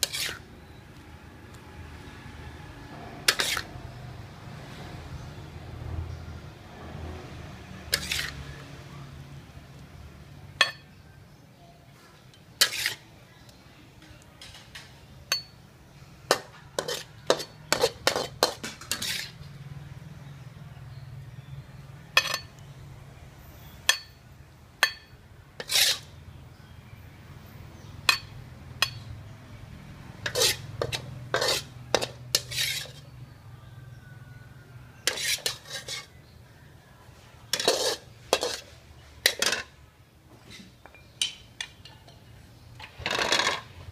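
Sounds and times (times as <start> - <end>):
metal spatula scraping a wok: 0.0 - 0.5, 2.9 - 4.0, 7.9 - 8.6, 12.2 - 13.1, 16.3 - 19.6, 22.2 - 22.6, 25.6 - 26.2, 30.2 - 33.2, 35.0 - 36.4, 37.5 - 39.8, 42.8 - 43.9.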